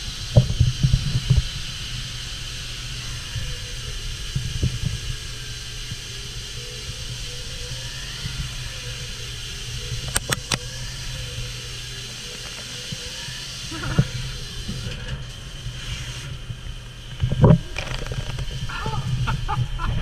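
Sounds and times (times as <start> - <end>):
coolant spraying against window: 0.0 - 19.6
lathe running: 0.7 - 19.9
sharp clicks: 10.0 - 10.8.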